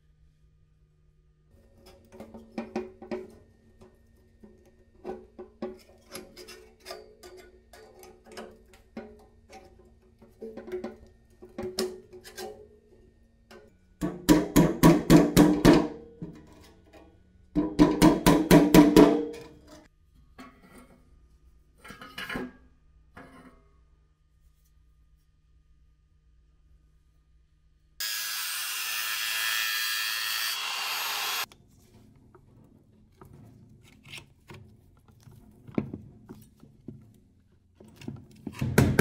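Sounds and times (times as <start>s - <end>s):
hammer striking steel bar: 17.6s - 19.6s.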